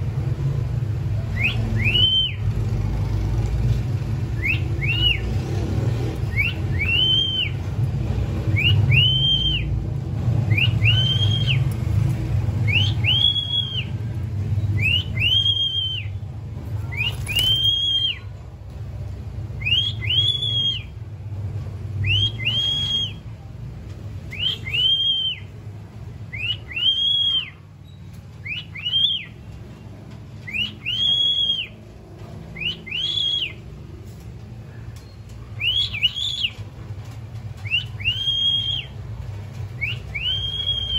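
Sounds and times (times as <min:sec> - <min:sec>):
cockatiel whistling: 0:01.4 - 0:02.4, 0:04.4 - 0:05.2, 0:06.3 - 0:07.6, 0:08.5 - 0:09.7, 0:10.5 - 0:11.6, 0:12.7 - 0:13.9, 0:14.7 - 0:16.2, 0:16.9 - 0:18.3, 0:19.6 - 0:20.9, 0:22.0 - 0:23.2, 0:24.3 - 0:25.5, 0:26.3 - 0:29.4, 0:30.4 - 0:31.8, 0:32.6 - 0:33.6, 0:35.6 - 0:36.6, 0:37.6 - 0:39.0, 0:39.8 - 0:40.9.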